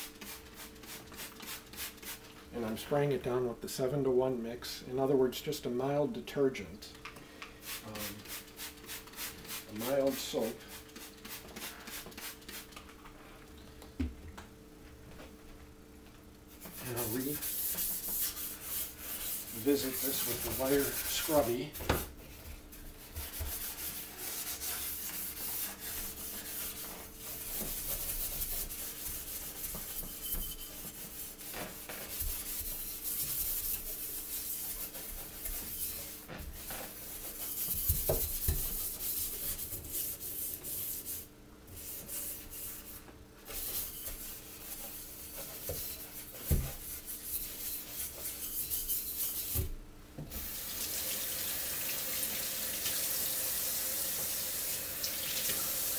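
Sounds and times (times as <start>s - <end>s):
wire pad scouring steel sink: 16.6s - 21.8s, 23.0s - 49.6s.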